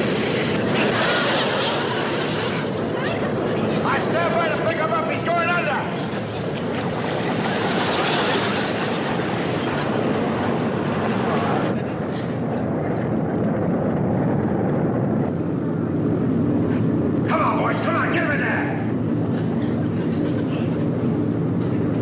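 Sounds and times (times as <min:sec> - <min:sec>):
engines running with rushing hiss: 0:00.0 - 0:22.0.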